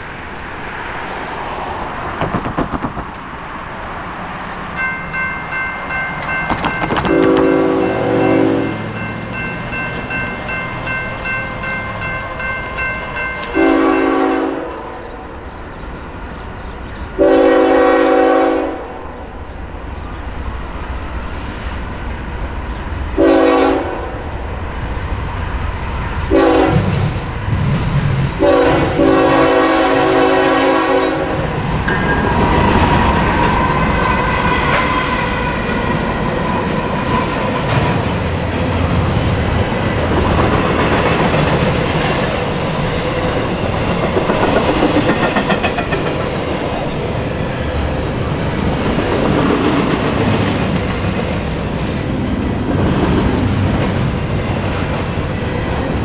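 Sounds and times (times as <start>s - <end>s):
train engines and wheels rumbling: 0.0s - 56.0s
crossing bell ringing: 4.7s - 15.2s, 31.8s - 34.0s
locomotive horn blasts: 7.1s - 9.0s, 12.7s - 15.0s, 17.2s - 18.9s, 23.2s - 24.2s, 26.3s - 26.9s, 28.4s - 31.6s.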